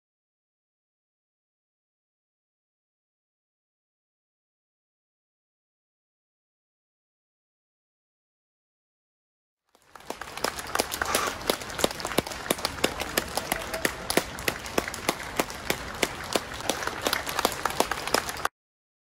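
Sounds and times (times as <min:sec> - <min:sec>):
crowd applauding: 0:09.7 - 0:18.5
loud close individual claps: 0:09.7 - 0:18.5.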